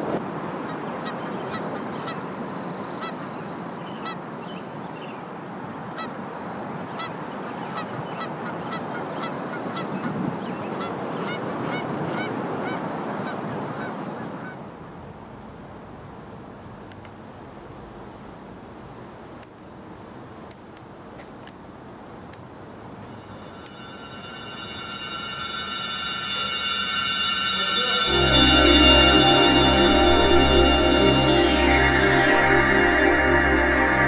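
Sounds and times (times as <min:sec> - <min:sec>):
wind: 0:00.0 - 0:34.0.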